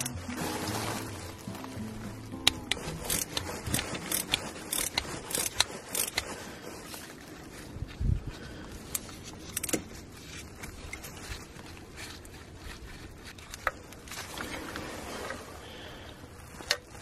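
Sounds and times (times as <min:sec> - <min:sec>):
ratchet clicking: 0:02.4 - 0:06.3, 0:08.9 - 0:09.8.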